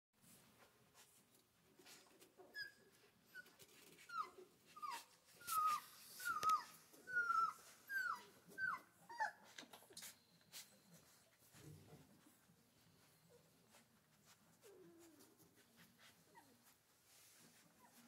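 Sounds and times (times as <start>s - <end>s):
puppies whimpering: 2.5s - 9.8s.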